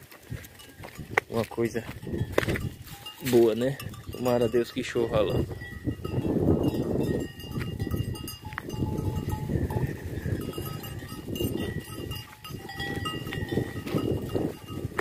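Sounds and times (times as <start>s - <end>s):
animals scuffling: 0.0s - 15.0s
goat bells clanking: 0.0s - 15.0s.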